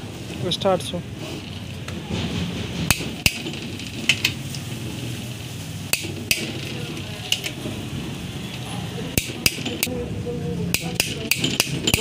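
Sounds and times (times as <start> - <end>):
torque wrench clicking: 5.9 - 7.6, 9.2 - 9.9, 10.7 - 12.0.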